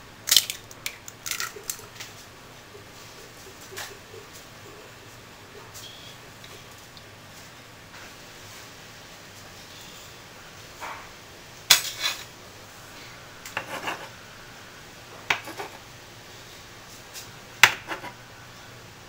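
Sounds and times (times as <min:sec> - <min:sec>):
metal spatula scraping frying pan: 0:11.7 - 0:12.3.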